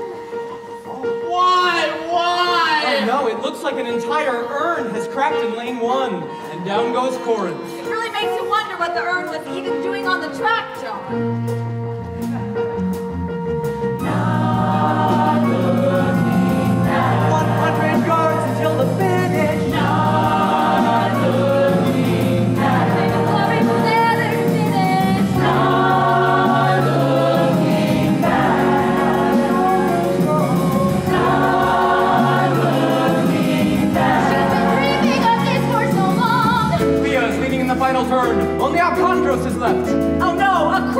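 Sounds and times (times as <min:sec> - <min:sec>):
instrumental accompaniment: 0:00.0 - 0:40.9
ensemble singing in chorus: 0:13.7 - 0:37.0.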